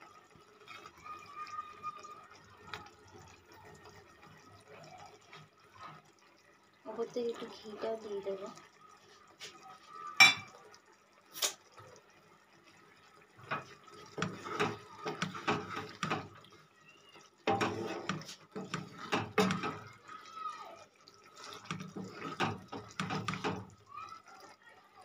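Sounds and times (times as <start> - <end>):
spatula stirring thick chutney: 13.3 - 19.9, 21.1 - 23.8.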